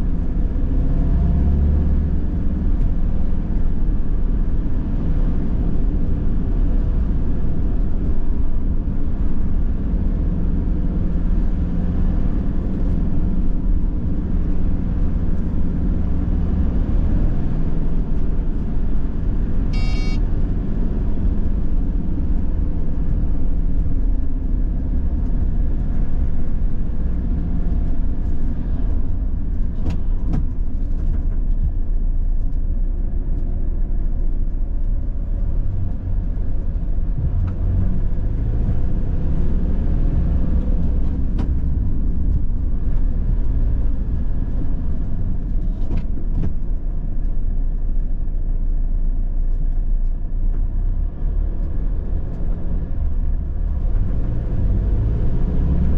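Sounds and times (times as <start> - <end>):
engine and tyre rumble: 0.0 - 55.9
high-pitched tone: 19.8 - 20.2.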